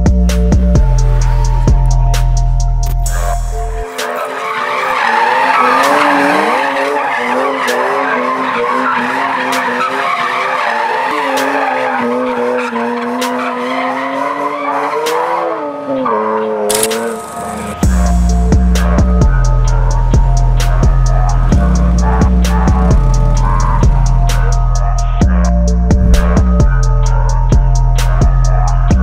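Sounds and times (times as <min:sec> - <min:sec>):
car engine revving high: 0:03.1 - 0:28.6
tyres squealing: 0:03.2 - 0:15.4.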